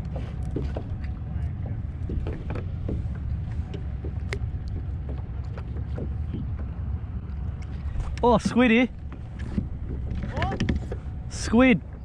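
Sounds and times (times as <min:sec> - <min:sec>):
faint ticks and knocks: 0:00.0 - 0:06.8
wind rumble on microphone: 0:00.0 - 0:12.0.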